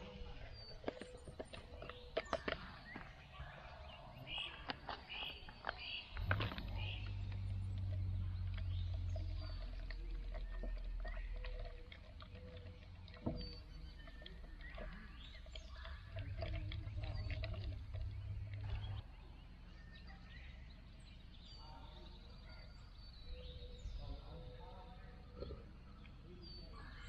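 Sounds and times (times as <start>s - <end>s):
birds chirping: 0.0s - 27.0s
low rumble: 6.0s - 21.6s.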